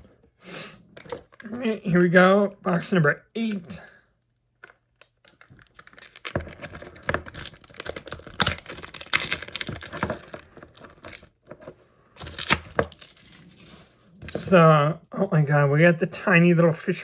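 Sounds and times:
packaging clicks and crackles: 1.0 - 1.8, 4.6 - 13.6.

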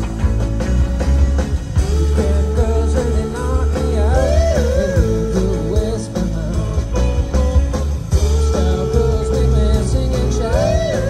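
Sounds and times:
rock band playing: 0.0 - 11.0
person singing: 1.8 - 7.5, 8.1 - 11.0.

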